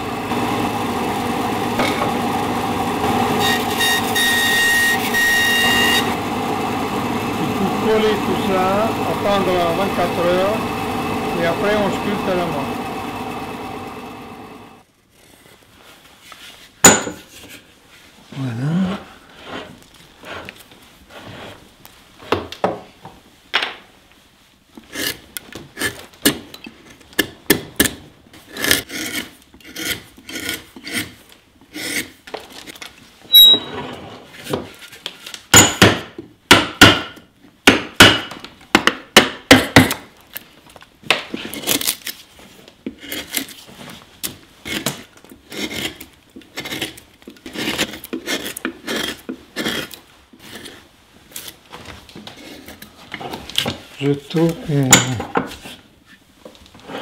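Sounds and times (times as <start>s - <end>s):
gouge scraping wood: 0.3s - 15.3s, 28.4s - 32.2s, 44.6s - 51.6s.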